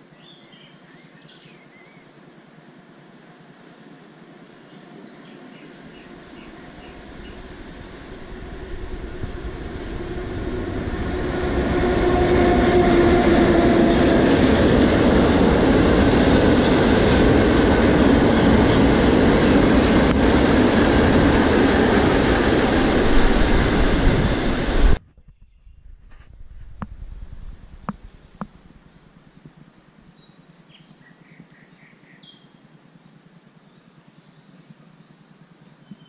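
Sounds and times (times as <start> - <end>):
freight train wheels rumbling on rail: 5.0 - 25.0.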